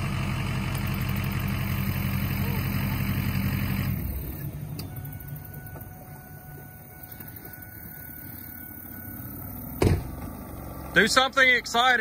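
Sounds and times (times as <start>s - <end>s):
outboard motor running: 0.0s - 12.0s
sharp thump: 9.8s - 10.2s.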